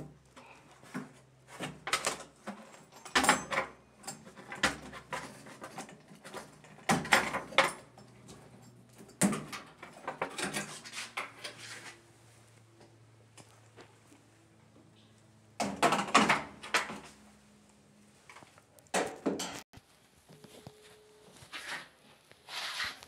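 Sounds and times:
plastic and metal clatter: 0.8 - 11.9, 15.6 - 17.1.

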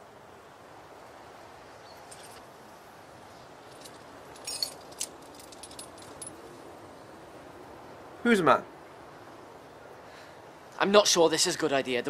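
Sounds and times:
faint steady hiss: 0.0 - 12.0
metal climbing gear clinking: 2.0 - 2.5, 3.4 - 6.6.

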